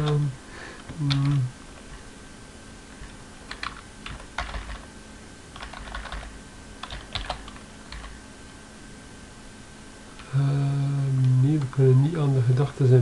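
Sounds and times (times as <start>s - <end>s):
keyboard key clicks: 5.6s - 8.1s.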